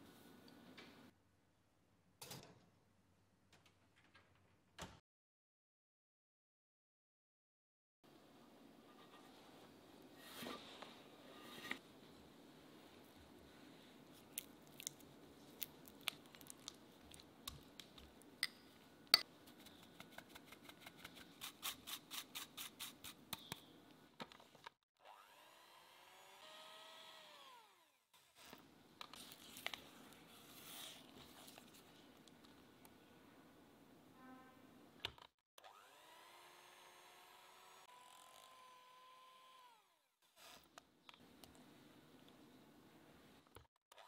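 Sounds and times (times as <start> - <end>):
soft stirring: 29.1 - 32.7.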